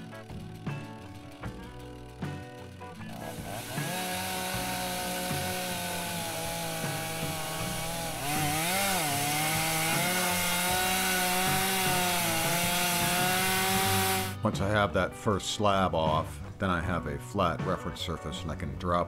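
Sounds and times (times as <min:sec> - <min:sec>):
chainsaw cutting log: 0:00.0 - 0:14.4.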